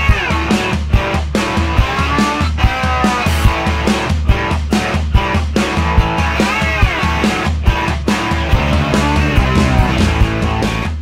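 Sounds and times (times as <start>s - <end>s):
guitar music over drum beat: 0.0s - 11.0s
falling pitch slide: 8.4s - 10.7s.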